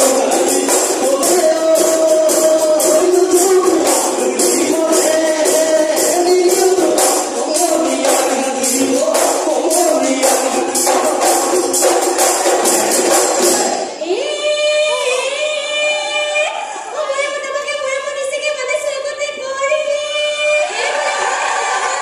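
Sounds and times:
drums and cymbals beating: 0.0 - 14.0
group singing: 0.0 - 14.0.

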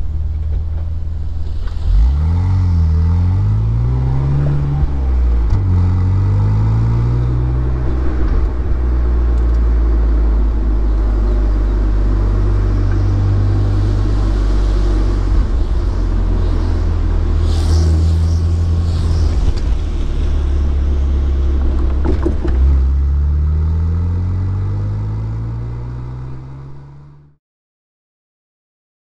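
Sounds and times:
car engine accelerating: 0.0 - 27.4.

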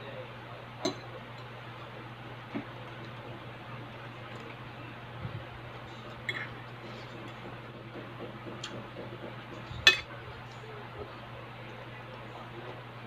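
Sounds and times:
steady low hum: 0.0 - 13.0
metal fork clinking on plate: 9.9 - 10.1.

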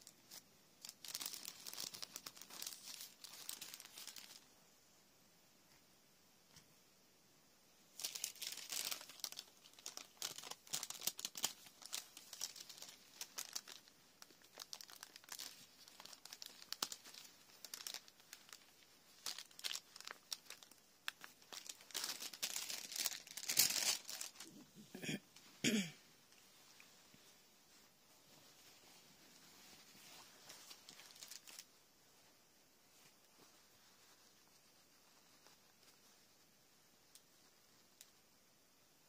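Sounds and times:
thin paper crinkling and tearing: 0.3 - 4.4, 8.0 - 24.6, 29.6 - 31.7.

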